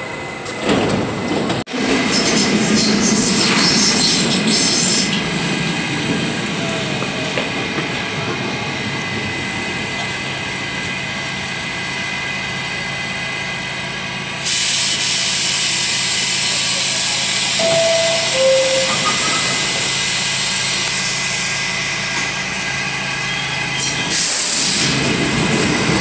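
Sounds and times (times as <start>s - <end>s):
subway train running on track: 0.0s - 26.0s
loud hiss: 14.4s - 21.6s, 23.8s - 25.1s.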